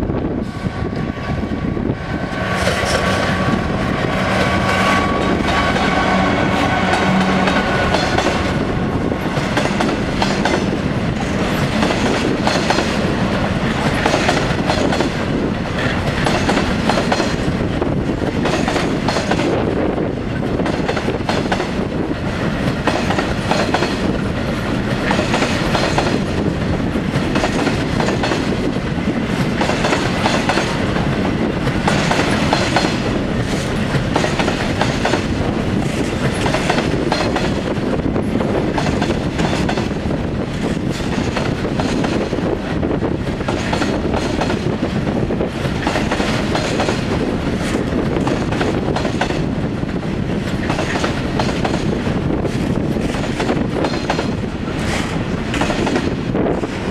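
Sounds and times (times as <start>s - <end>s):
train wheels clickety-clack: 0.4s - 56.9s.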